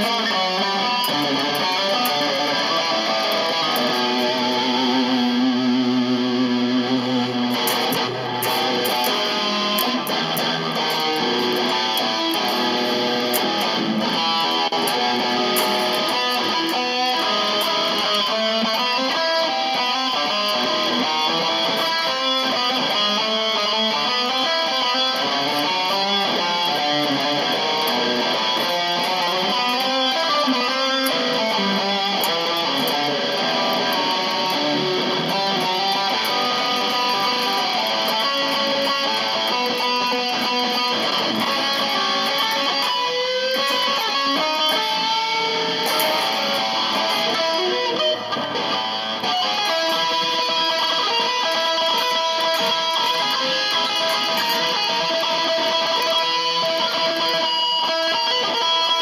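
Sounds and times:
electric guitar riffs: 0:00.0 - 0:59.0.

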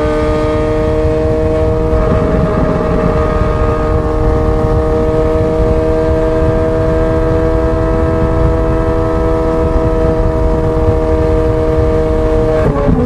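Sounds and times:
sports car engine droning: 0:00.0 - 0:13.0
low rushing noise: 0:00.3 - 0:06.6.

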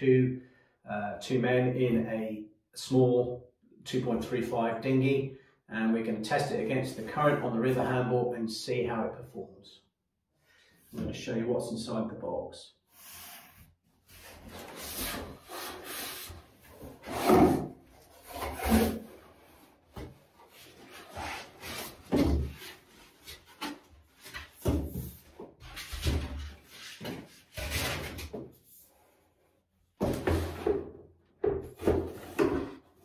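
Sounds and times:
cardboard rustling and scraping: 0:13.0 - 0:28.8.

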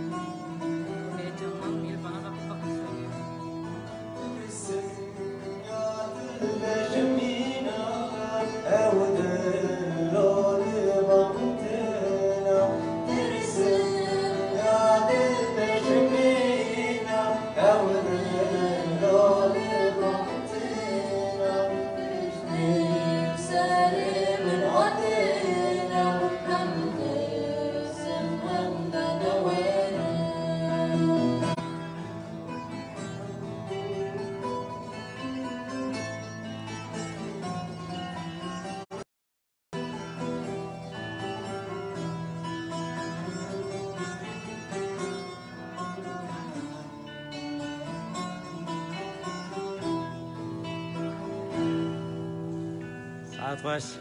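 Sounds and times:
acoustic guitar: 0:00.0 - 0:39.0, 0:39.7 - 0:54.0
young man singing: 0:04.2 - 0:31.6
saz playing: 0:39.8 - 0:54.0.

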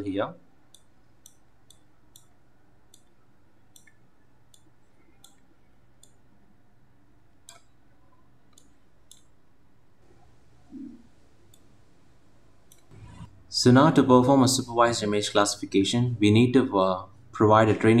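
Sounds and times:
faint background hiss: 0:00.0 - 0:18.0
computer mouse clicking: 0:00.7 - 0:02.3, 0:02.9 - 0:06.2, 0:08.5 - 0:09.3, 0:11.5 - 0:11.7, 0:12.7 - 0:13.3.

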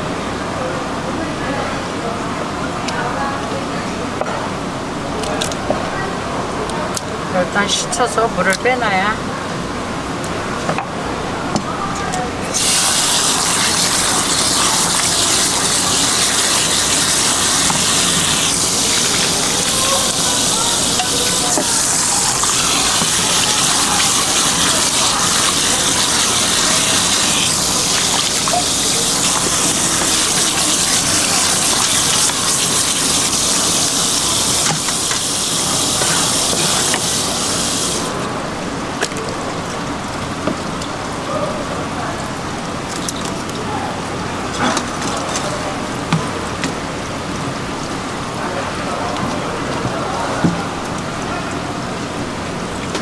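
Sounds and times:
running water gushing and splashing: 0:12.4 - 0:38.6.

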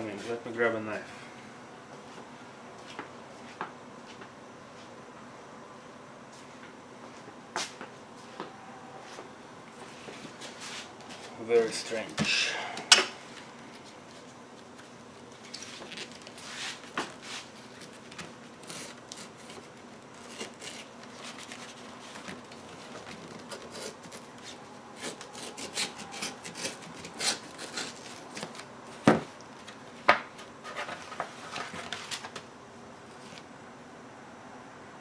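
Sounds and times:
paper crackling and rustling: 0:13.4 - 0:32.4
knife slitting paper envelope: 0:15.4 - 0:28.7.

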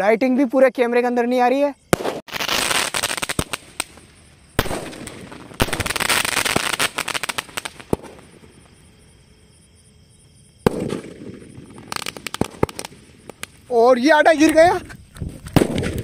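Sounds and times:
firework bangs: 0:01.9 - 0:08.9, 0:10.6 - 0:13.6, 0:15.3 - 0:16.0
firework crackling: 0:01.9 - 0:08.9, 0:10.6 - 0:16.0.

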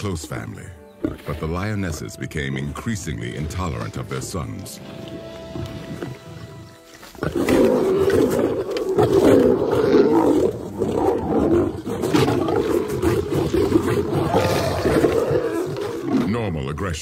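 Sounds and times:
lions snarling and roaring: 0:04.9 - 0:16.5.

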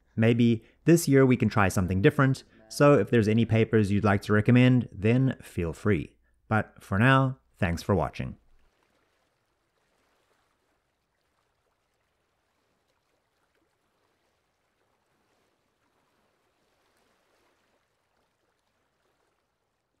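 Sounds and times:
small waves on pebble beach: 0:08.7 - 0:19.6.

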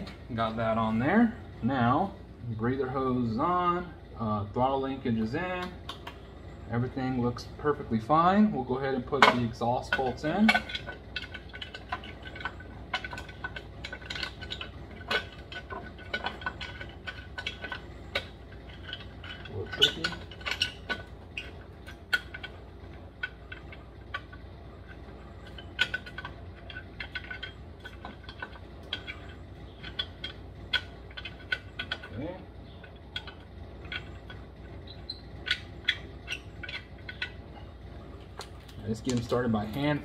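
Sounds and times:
metal parts clicking and clinking: 0:08.8 - 0:40.0.

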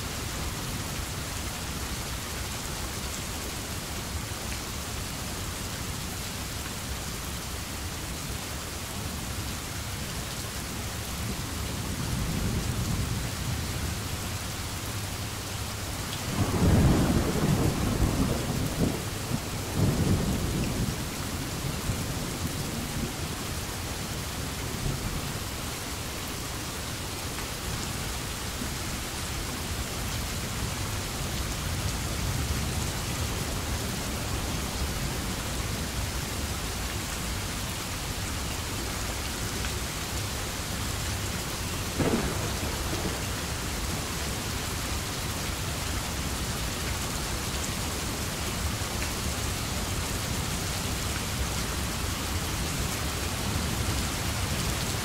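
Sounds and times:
steady rain: 0:00.0 - 0:55.0
thunder rumbling: 0:41.9 - 0:43.8.

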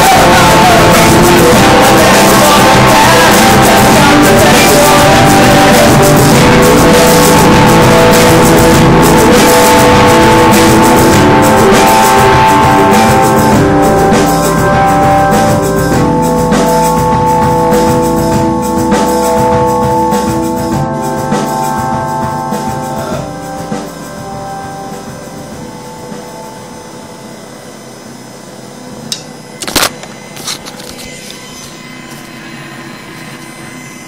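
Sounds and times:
live rock band: 0:00.0 - 0:26.6.

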